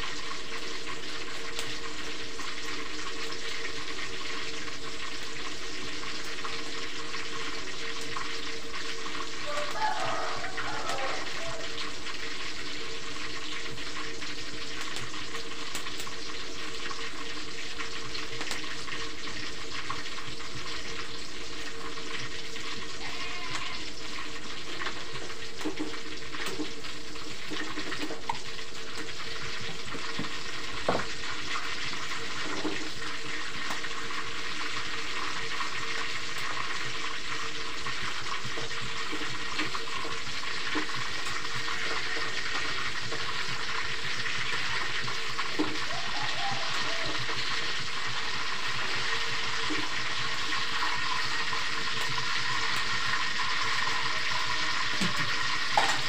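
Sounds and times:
tofu sizzling in hot oil: 0.0 - 56.0.

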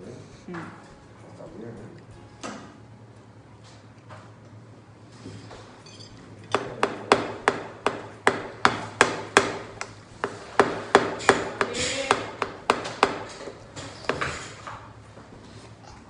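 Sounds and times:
sharp knocks: 6.5 - 14.8.

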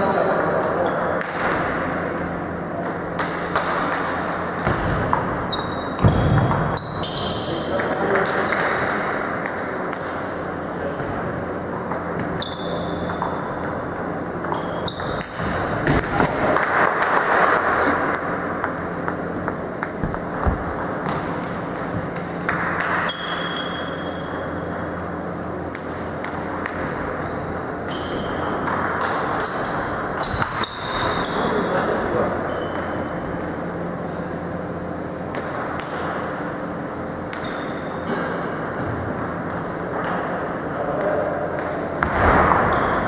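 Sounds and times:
shoe squeaks: 1.4 - 2.3, 5.5 - 7.7, 12.3 - 13.2, 14.6 - 15.2, 21.0 - 21.4, 23.0 - 24.3, 27.9 - 31.8, 37.4 - 38.0.

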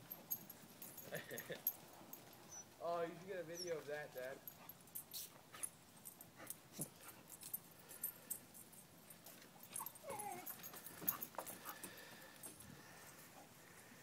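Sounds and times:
light ticks and rustles: 0.0 - 14.0
puppies whimpering and yipping: 2.4 - 2.8, 9.7 - 11.2.

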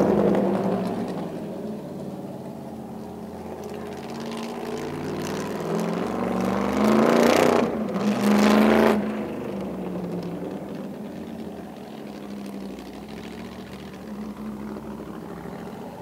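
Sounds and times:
car accelerating past: 3.3 - 16.0.

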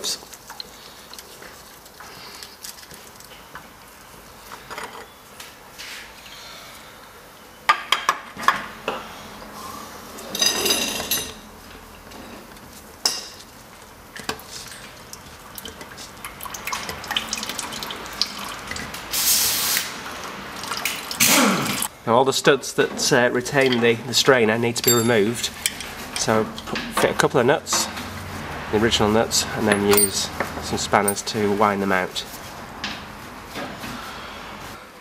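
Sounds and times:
metal clinks and scrapes: 24.8 - 26.3, 29.6 - 30.4.

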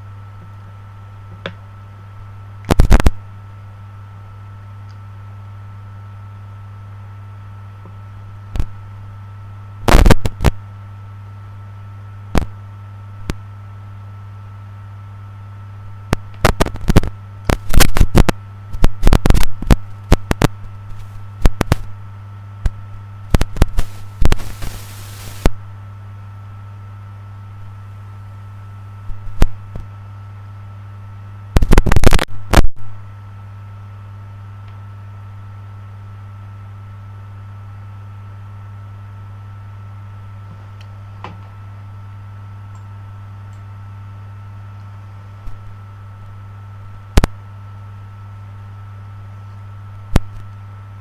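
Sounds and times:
low electrical hum: 0.0 - 51.0
distorted crackles and pops: 2.6 - 3.3, 7.9 - 8.9, 9.8 - 10.7, 12.2 - 12.6, 13.2 - 13.5, 16.0 - 25.6, 29.0 - 30.0, 31.4 - 33.1, 45.4 - 47.5, 49.8 - 51.0.

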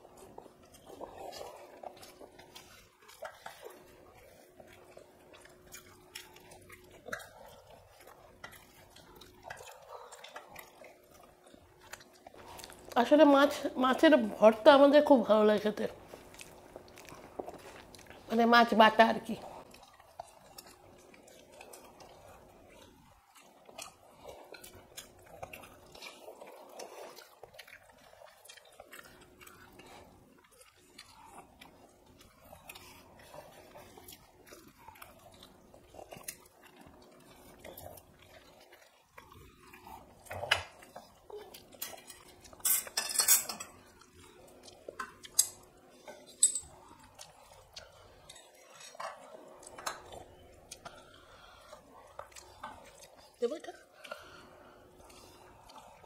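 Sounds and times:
chewing: 0.0 - 56.0
steel dishes and spoon clattering: 42.6 - 43.7.

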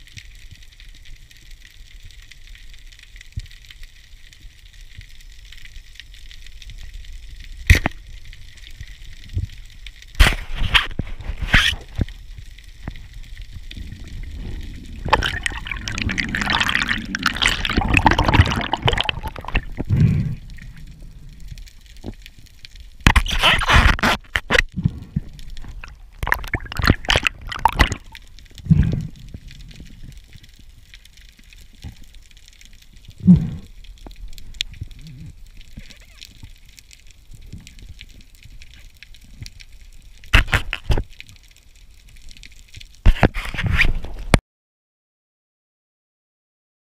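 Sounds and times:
low steady hiss: 0.0 - 43.0
water gurgling and sloshing: 10.4 - 39.6.

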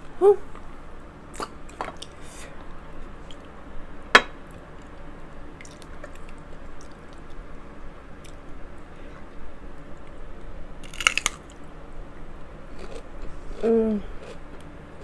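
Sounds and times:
wet chewing of food: 5.6 - 7.4.

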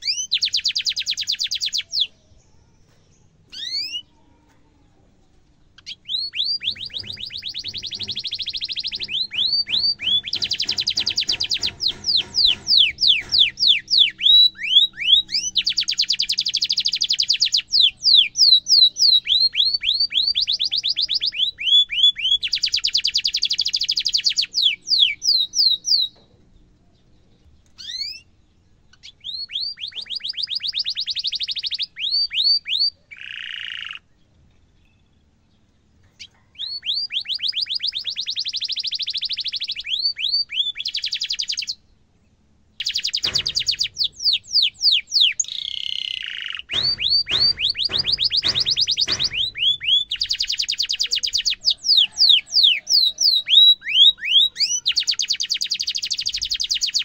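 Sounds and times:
canary singing trills: 0.0 - 4.5, 5.6 - 57.0
brief thump: 43.2 - 44.1, 46.7 - 49.7.

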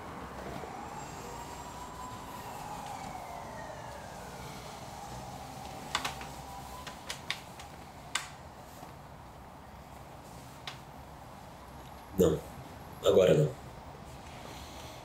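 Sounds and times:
siren wailing: 0.0 - 8.6
low city hum: 0.0 - 15.0.

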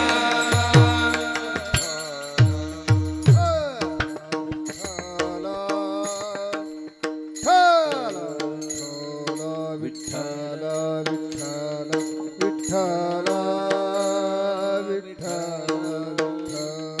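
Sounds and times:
held drone with melody: 0.0 - 4.3
hand-drum strokes: 0.0 - 8.8
hand cymbals clashing: 0.0 - 14.4.

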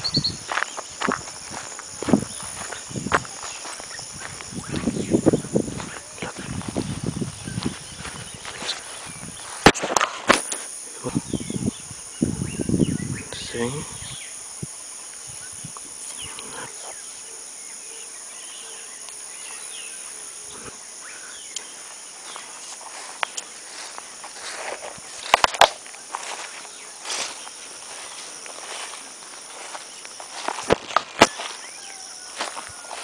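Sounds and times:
footsteps crunching through grass: 0.0 - 10.8, 21.6 - 33.0
high insect chorus: 0.0 - 33.0.

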